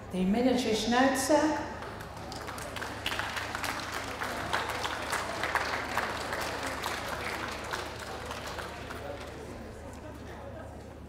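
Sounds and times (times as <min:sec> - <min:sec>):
audience applauding: 0:01.8 - 0:09.9.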